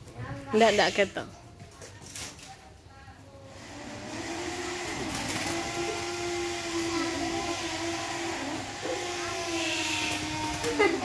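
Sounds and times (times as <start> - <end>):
motor humming: 3.5 - 11.0.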